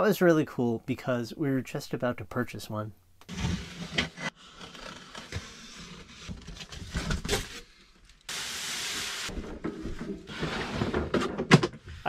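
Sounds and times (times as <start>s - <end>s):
steady hiss: 8.3s - 9.3s
cardboard scraping and knocking: 9.3s - 12.0s.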